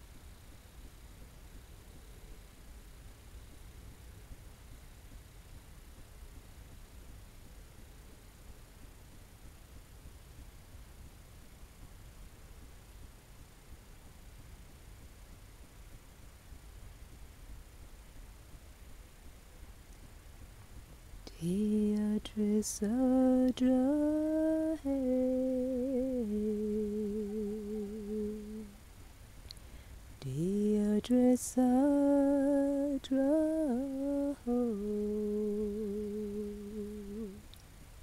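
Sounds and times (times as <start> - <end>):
person humming a tune: 21.3 - 28.8, 30.2 - 37.5.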